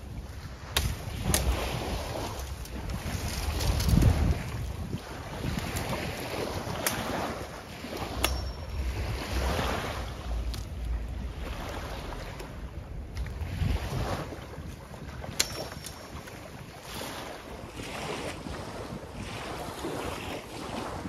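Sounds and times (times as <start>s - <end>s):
wind buffeting microphone: 0.0s - 21.0s
river water rushing: 3.1s - 14.4s.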